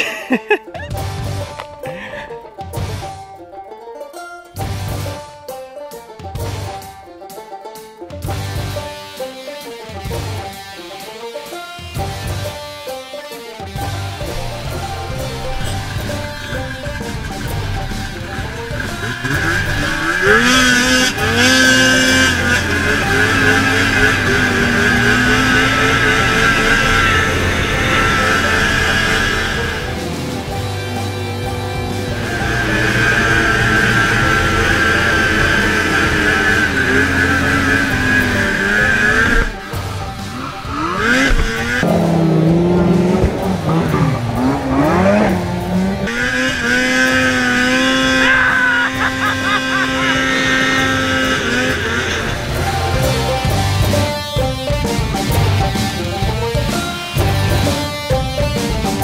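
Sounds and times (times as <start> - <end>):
snowmobile engine revving hard: 13.8 - 56.0.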